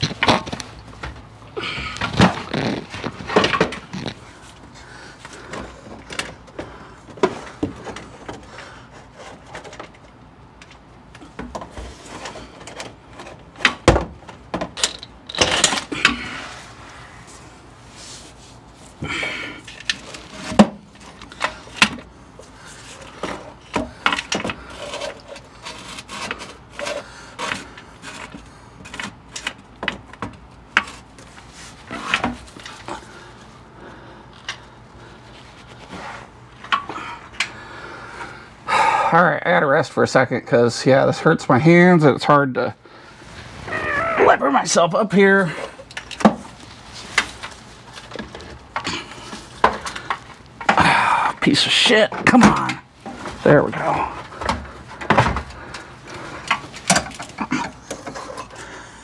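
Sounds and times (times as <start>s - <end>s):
hand tools clicking and scraping metal: 19.2s - 33.1s, 47.1s - 58.8s.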